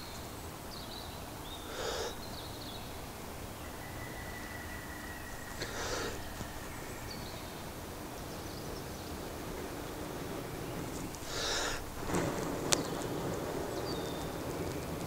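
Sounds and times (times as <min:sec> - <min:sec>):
breath blown into tinder: 0:01.7 - 0:02.3, 0:05.6 - 0:06.4, 0:11.2 - 0:12.1.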